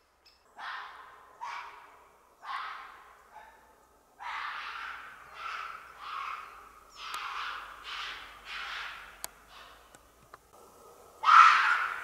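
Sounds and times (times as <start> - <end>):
animal harsh calls: 4.2 - 9.9, 11.2 - 12.0.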